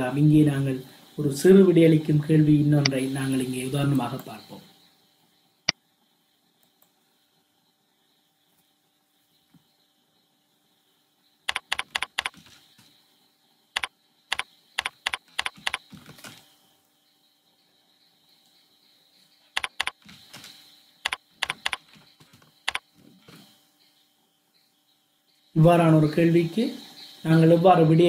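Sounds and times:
keyboard typing clicks: 11.5s - 12.4s, 13.8s - 15.9s, 19.6s - 20.2s, 21.0s - 22.0s.

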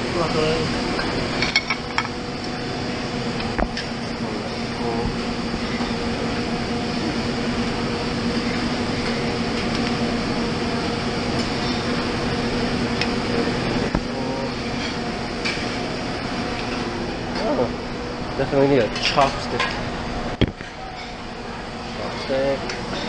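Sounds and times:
ventilation hum: 0.0s - 23.0s.

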